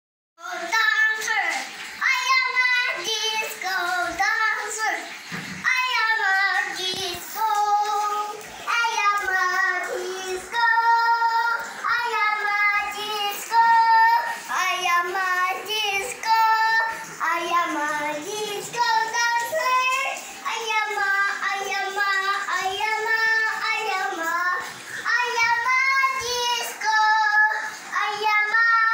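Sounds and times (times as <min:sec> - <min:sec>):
child singing: 0:00.4 - 0:28.9.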